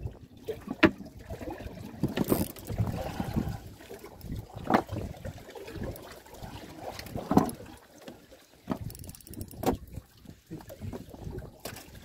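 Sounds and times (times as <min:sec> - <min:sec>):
water slapping against boat hull: 0:00.0 - 0:12.0.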